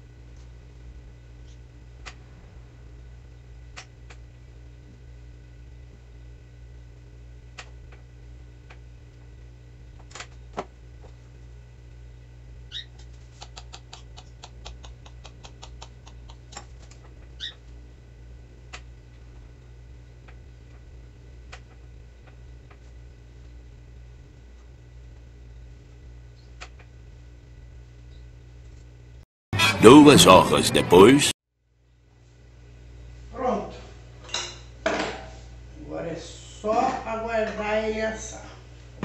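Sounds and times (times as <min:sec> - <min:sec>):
steady low hum: 0:00.0 - 0:28.9.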